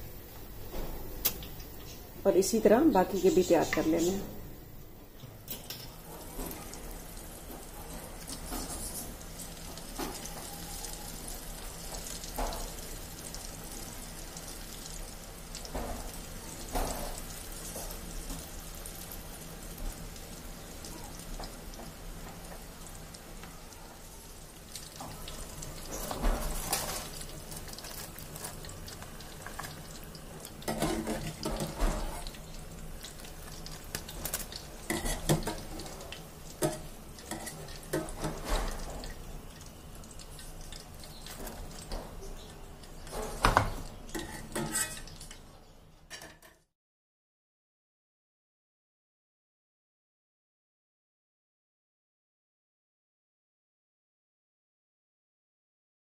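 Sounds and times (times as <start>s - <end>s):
food sizzling in hot oil: 0.0s - 45.7s.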